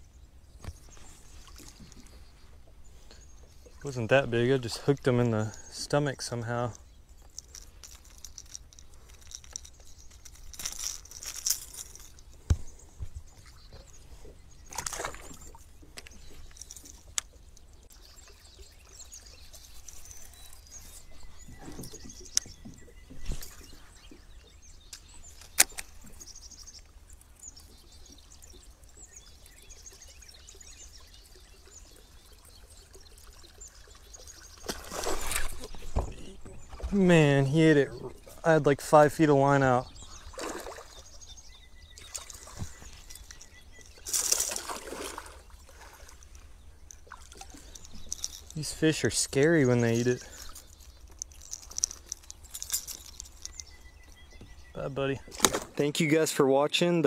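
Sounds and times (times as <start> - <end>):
handling sounds on a kayak: 0.6 - 3.8, 7.1 - 17.9, 19.4 - 27.8, 34.6 - 37.5, 40.1 - 55.9
water splashing and dripping: 3.0 - 24.2, 24.9 - 41.4, 42.0 - 53.8.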